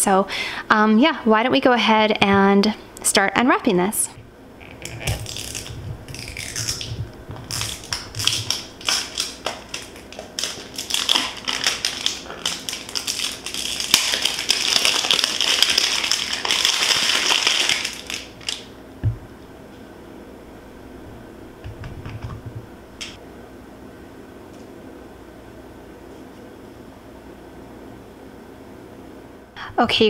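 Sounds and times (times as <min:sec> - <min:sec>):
cellophane crinkling: 0:04.6 - 0:18.7.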